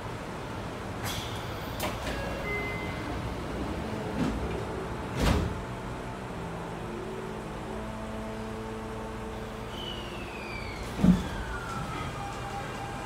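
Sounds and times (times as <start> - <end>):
standing train hum: 0.0 - 13.0
sliding train doors closing: 0.6 - 5.9, 9.3 - 13.0.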